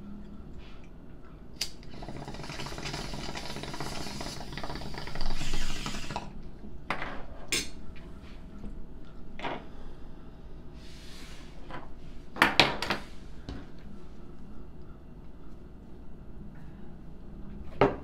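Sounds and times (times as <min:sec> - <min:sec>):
water bubbling in a bong: 0:01.6 - 0:06.3.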